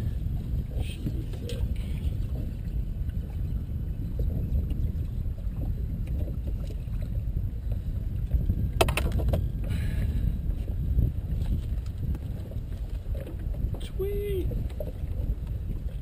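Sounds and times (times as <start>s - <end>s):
wind and water rumble: 0.0s - 16.0s.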